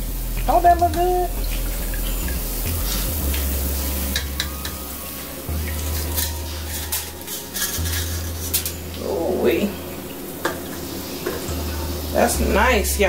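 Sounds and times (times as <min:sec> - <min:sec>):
hot oil sizzling: 0:00.0 - 0:13.0
metal fry basket clinking: 0:03.3 - 0:09.7.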